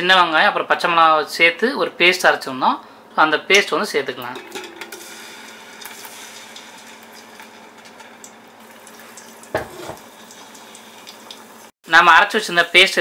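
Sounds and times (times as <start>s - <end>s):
paste sizzling in hot oil: 4.8s - 13.0s.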